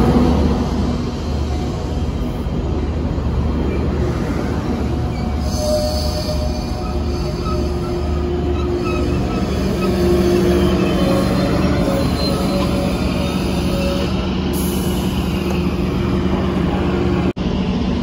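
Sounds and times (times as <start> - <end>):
train wheels rumbling on rail: 0.0 - 18.0
wheels and brakes squealing: 3.6 - 16.1.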